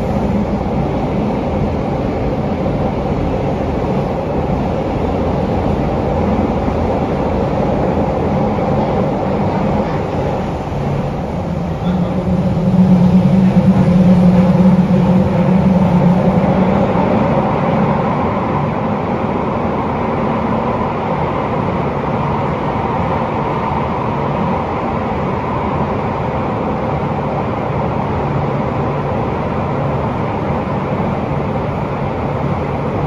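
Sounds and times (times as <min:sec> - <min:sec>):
subway car motor hum: 0:00.0 - 0:33.0
running gear rumble: 0:08.3 - 0:17.6.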